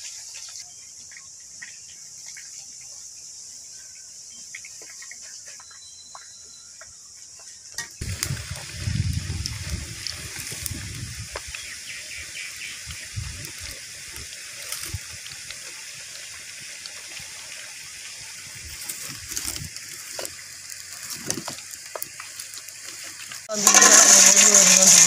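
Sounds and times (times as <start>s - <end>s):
faint oil crackles: 0.0s - 25.0s
potatoes sizzling in hot oil: 7.8s - 25.0s.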